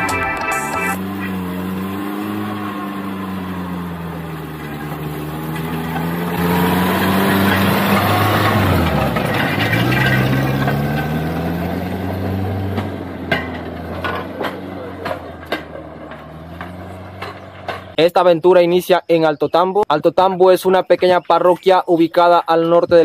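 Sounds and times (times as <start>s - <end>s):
rail car engine revving: 0.0s - 18.0s.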